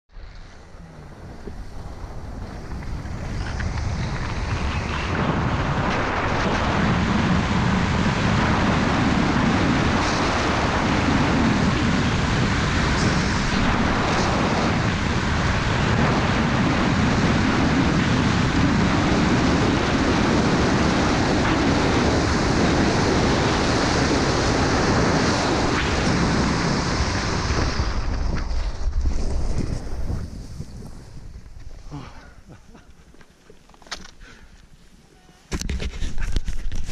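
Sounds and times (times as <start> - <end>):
skis scraping on snow: 0.1 - 31.9
wind rushing over microphone: 0.1 - 33.0, 35.5 - 36.9.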